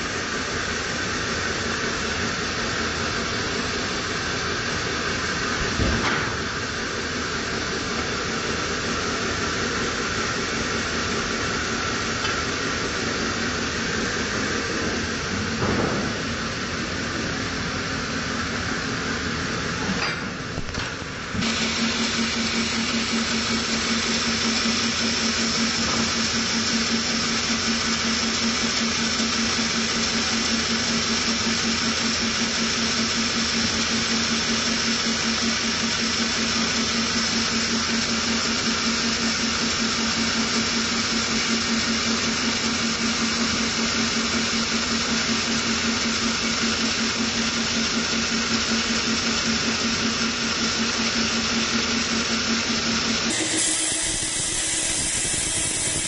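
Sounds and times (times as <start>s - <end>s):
band sawmill humming and whining: 0.0s - 31.8s, 49.3s - 56.0s.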